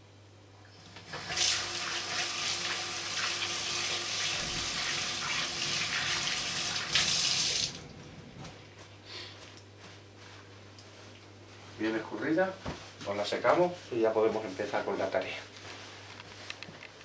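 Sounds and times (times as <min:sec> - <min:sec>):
tap water running into sink: 0:01.0 - 0:07.8.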